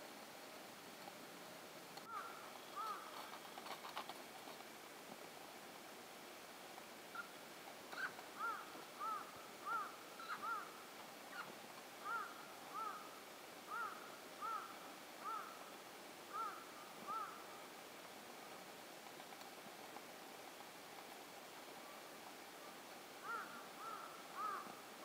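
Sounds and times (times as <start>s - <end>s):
animal calling: 2.1s - 3.4s, 7.1s - 13.1s, 13.7s - 15.6s, 16.3s - 17.5s, 23.2s - 24.8s.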